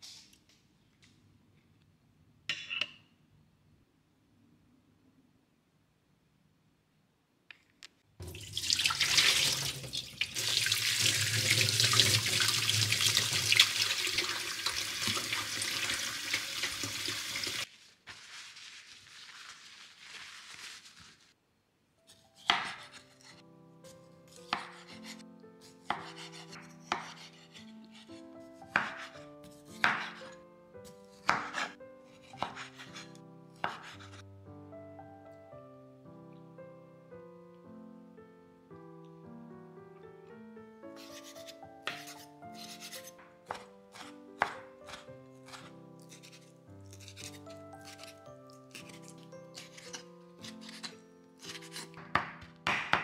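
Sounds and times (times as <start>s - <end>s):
tap water running into bowl: 8.2s - 17.6s
paper towel rustling: 17.4s - 21.4s
soft piano music: 22.0s - 53.0s
knife chopping on wooden board: 22.1s - 23.4s, 24.3s - 34.2s, 41.0s - 53.0s.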